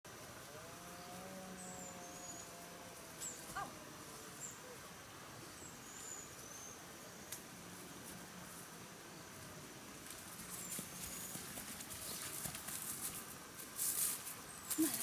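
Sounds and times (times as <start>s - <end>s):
distant drawn-out animal call: 0.7s - 4.8s.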